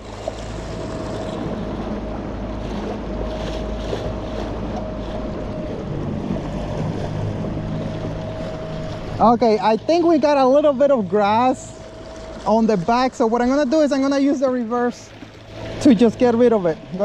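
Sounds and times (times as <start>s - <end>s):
wind on microphone: 0.0s - 10.0s
electric outboard motor whine: 0.0s - 17.0s
rushing water: 0.0s - 17.0s.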